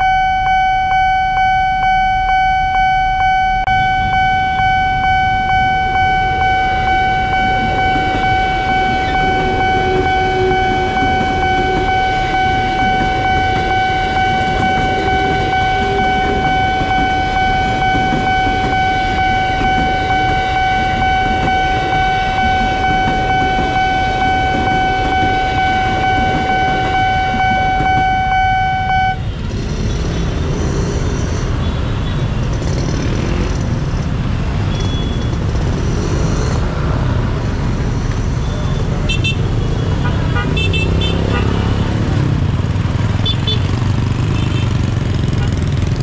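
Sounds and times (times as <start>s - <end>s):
level crossing warning siren: 0.0s - 29.4s
road traffic: 0.0s - 46.0s
passing electric train rumble: 3.2s - 34.7s, 35.3s - 46.0s.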